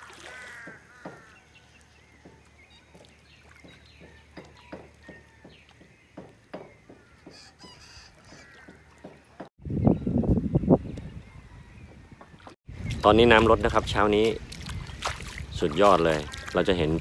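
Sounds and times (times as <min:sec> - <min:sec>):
feet wading through shallow water: 0:00.0 - 0:05.8, 0:12.7 - 0:17.0.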